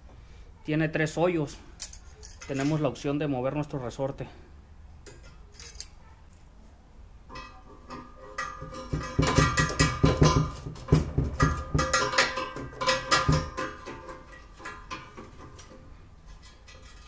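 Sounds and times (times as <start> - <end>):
small metal handling sounds: 1.4 - 3.2, 5.0 - 6.5, 7.2 - 17.0
metal bar knocking on workbench: 7.3 - 14.1.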